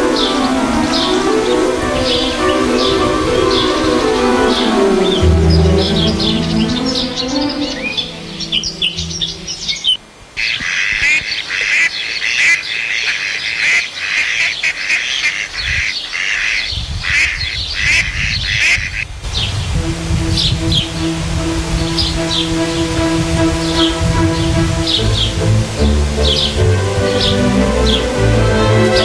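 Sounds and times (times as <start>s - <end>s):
ducks quacking: 0.0s - 19.0s
small birds chirping: 0.0s - 19.7s.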